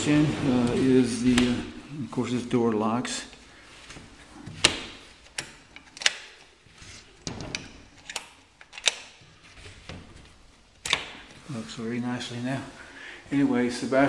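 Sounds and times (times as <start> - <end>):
door handle and lock clicking: 4.6 - 6.5, 7.2 - 9.2.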